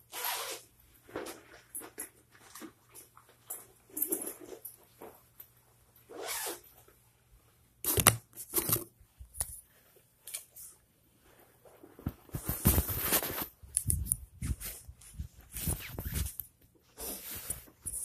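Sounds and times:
phone rustling against clothing: 7.9 - 18.0.

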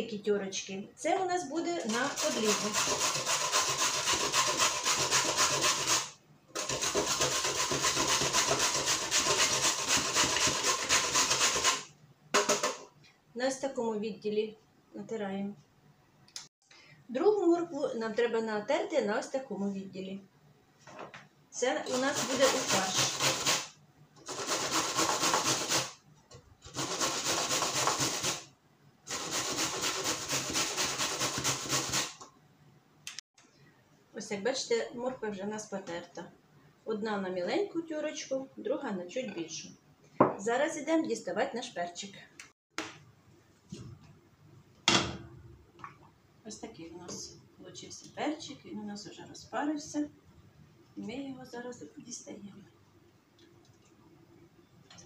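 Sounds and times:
carrot grating on metal grater: 1.9 - 12.8, 21.8 - 26.0, 26.6 - 28.5, 29.1 - 32.2.

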